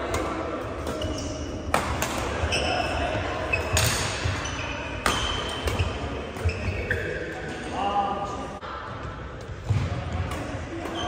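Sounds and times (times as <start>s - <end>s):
racket hitting shuttlecock: 0.1s - 2.5s, 3.5s - 7.1s.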